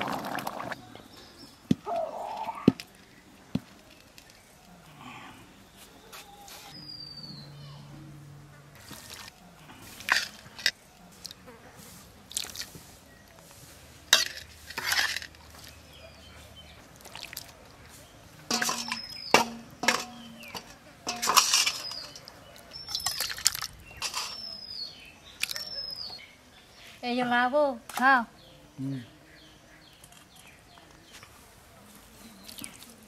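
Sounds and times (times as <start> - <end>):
ladle knocking on wok: 18.5 - 21.8.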